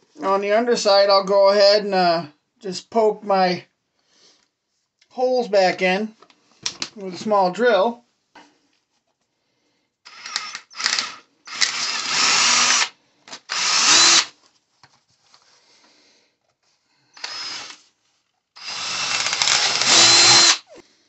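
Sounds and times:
cordless drill drilling plastic: 10.1 - 14.3, 17.2 - 17.8, 18.6 - 20.7.

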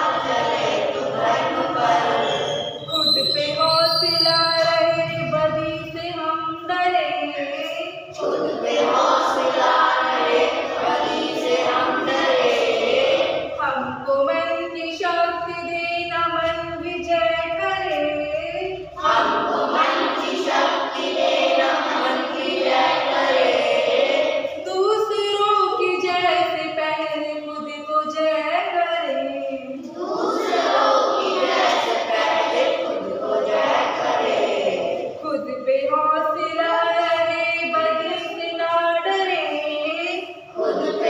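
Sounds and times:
children singing in unison: 0.0 - 2.9, 8.0 - 13.6, 18.8 - 24.6, 29.7 - 35.2, 40.5 - 41.0.

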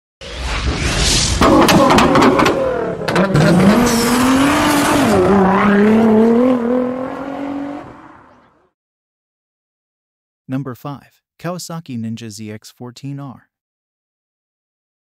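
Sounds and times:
engine revving: 0.2 - 8.7
sharp cracks and bangs: 0.5 - 4.2.

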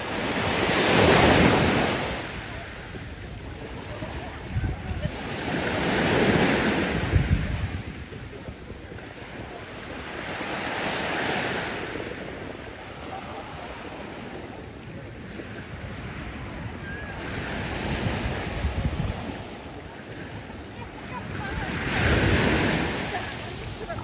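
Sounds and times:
waves washing on sandy beach: 0.0 - 24.0
wind buffeting microphone: 1.0 - 10.0, 14.4 - 24.0.

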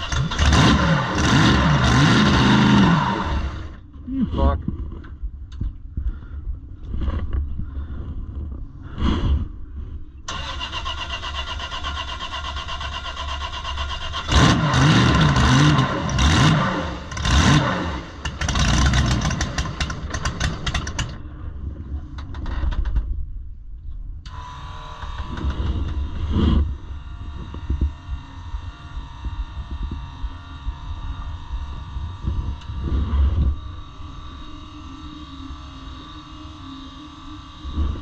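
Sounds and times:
starter motor cranking: 0.0 - 3.7, 10.3 - 21.2
boat engine firing unevenly: 10.3 - 21.2.

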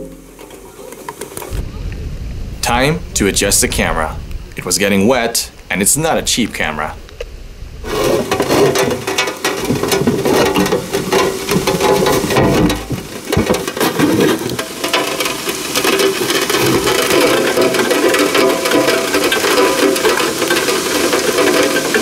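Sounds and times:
raindrops tapping on camera: 0.0 - 22.0.

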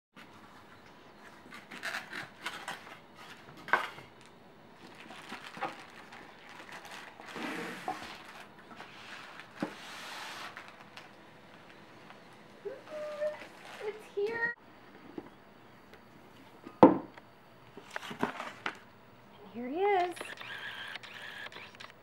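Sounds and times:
rustling plastic packing: 1.4 - 11.8, 12.8 - 14.4.

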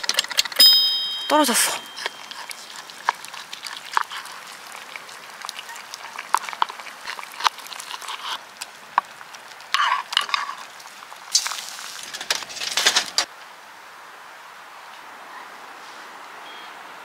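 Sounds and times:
tongs and knife clicking and scraping: 0.0 - 11.6.

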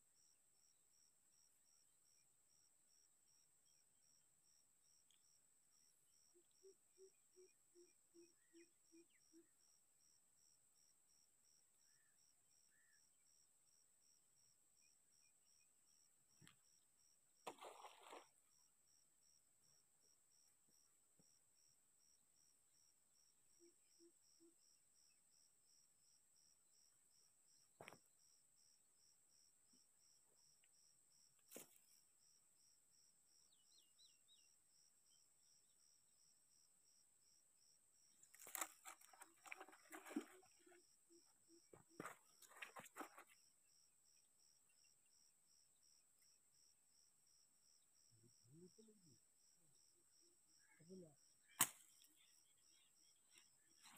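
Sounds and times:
crickets chirping: 0.0 - 53.9.

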